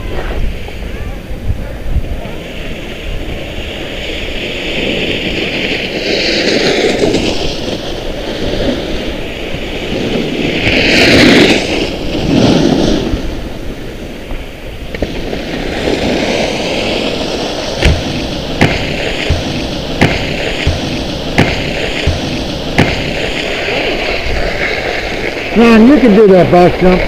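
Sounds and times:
wind buffeting microphone: 0.0s - 27.0s
skis knocking on rail: 17.5s - 24.1s.

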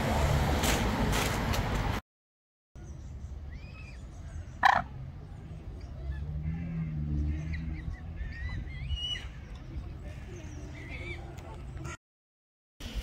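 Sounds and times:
small birds chirping: 2.8s - 12.0s
waterfowl calling: 4.6s - 5.0s.

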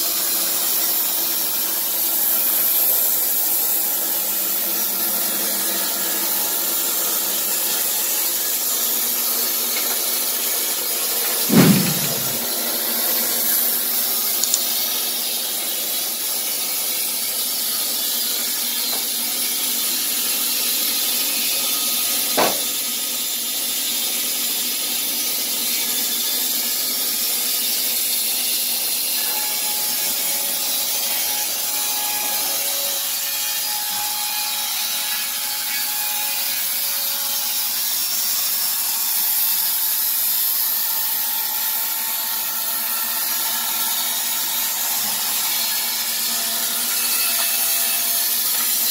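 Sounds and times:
motor hum: 11.5s - 12.5s
sharp knock: 11.5s - 12.5s
band saw blade cutting wood: 11.5s - 12.6s.

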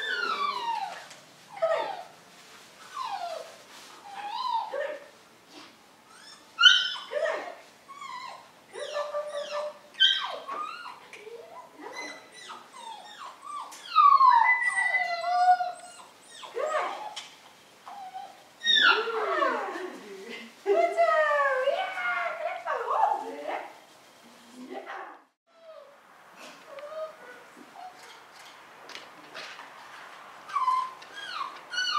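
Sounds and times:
puppy whining and yelping: 0.0s - 2.2s, 2.8s - 4.8s, 6.1s - 7.1s, 7.9s - 19.6s, 25.5s - 26.0s, 26.7s - 28.3s, 30.5s - 31.9s.

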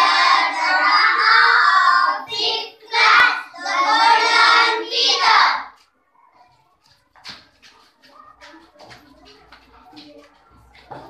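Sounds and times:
girls voicing in unison: 0.0s - 5.8s.

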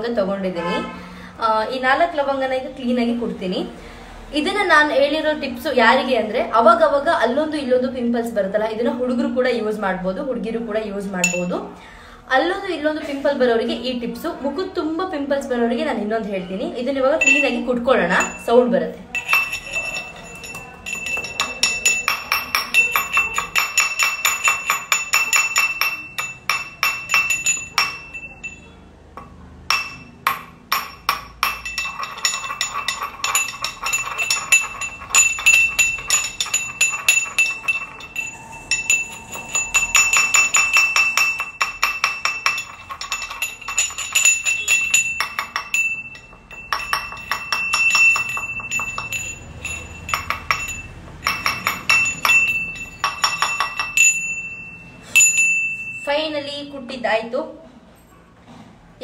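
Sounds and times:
pestle pounding in metal mortar: 19.2s - 28.3s, 29.2s - 54.2s.

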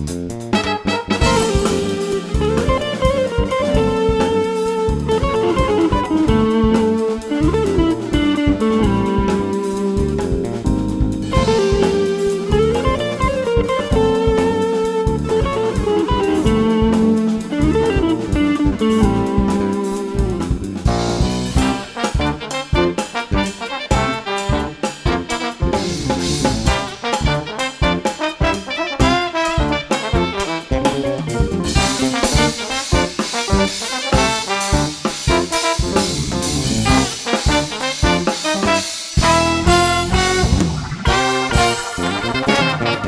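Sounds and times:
drum kit: 0.0s - 43.0s
electric bass: 0.0s - 43.0s
electric guitar: 0.7s - 29.1s, 38.0s - 43.0s.

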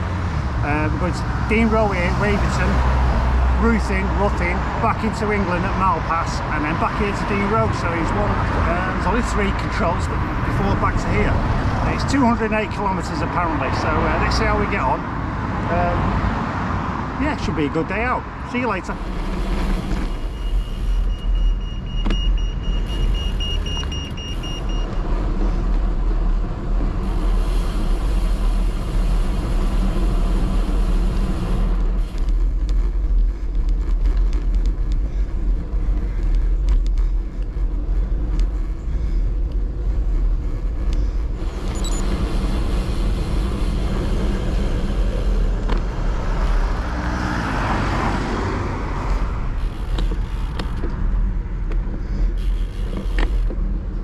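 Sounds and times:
bicycle tyre and road noise: 0.0s - 54.0s
pedestrian crossing beeps: 18.6s - 25.4s, 35.2s - 44.3s.

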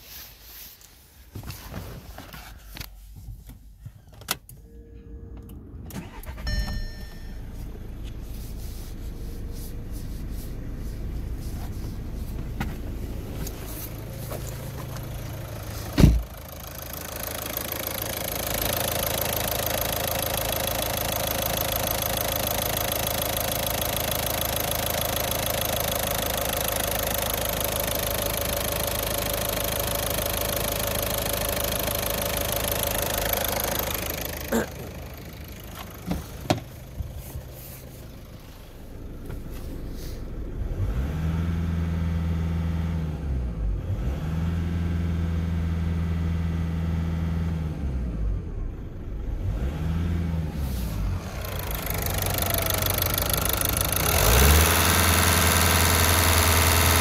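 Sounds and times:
diesel engine idling and revving: 4.6s - 57.0s
loud thump: 15.9s - 16.3s.

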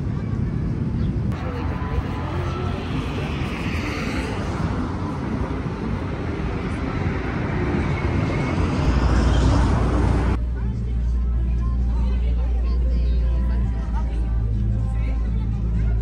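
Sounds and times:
city street traffic: 0.0s - 16.0s.

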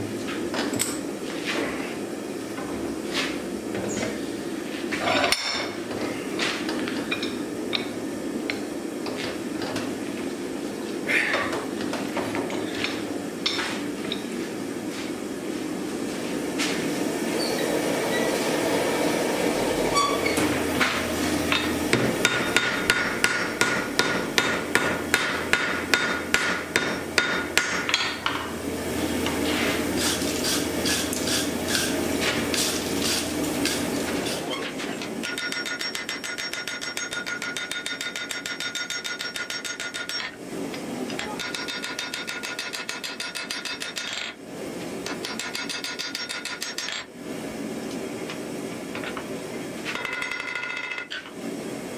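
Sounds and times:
hammer striking steel on anvil: 21.5s - 28.4s, 35.2s - 40.3s, 41.2s - 44.3s, 45.0s - 47.0s, 50.0s - 51.2s.

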